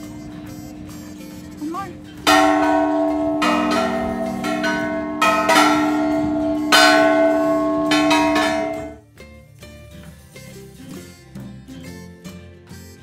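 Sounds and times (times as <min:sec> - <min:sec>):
metal tube chimes ringing: 0:02.2 - 0:09.0.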